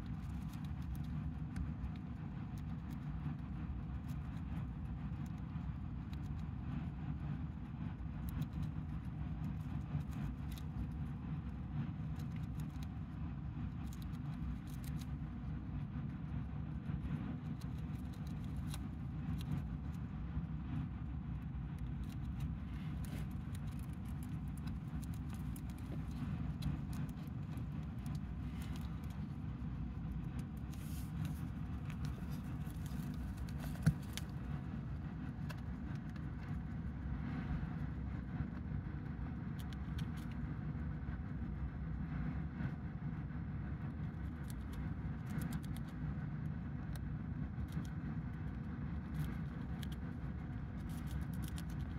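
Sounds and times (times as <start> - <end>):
hamster nibbling leaf: 0.0 - 51.9
low rumble: 7.1 - 45.1.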